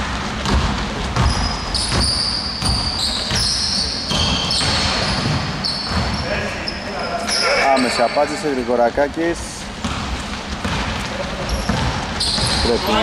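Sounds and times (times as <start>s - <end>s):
basketball dribbling on wood floor: 0.0s - 6.2s, 9.8s - 13.0s
sneaker squeaks: 0.4s - 8.5s, 9.6s - 13.0s.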